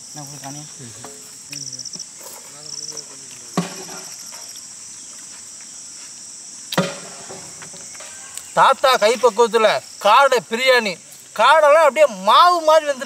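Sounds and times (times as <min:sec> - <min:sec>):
insects chorus: 0:00.0 - 0:13.0
sharp knock: 0:03.6 - 0:04.1, 0:06.7 - 0:08.2.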